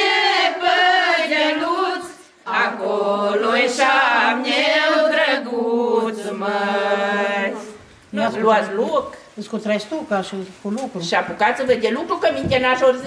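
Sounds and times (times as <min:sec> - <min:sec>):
women singing unaccompanied: 0:00.0 - 0:09.1.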